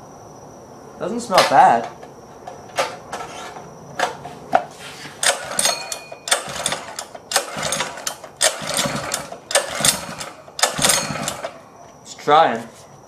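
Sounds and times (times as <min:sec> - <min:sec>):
recoil starter pulls cranking engine: 0:05.2 - 0:11.6.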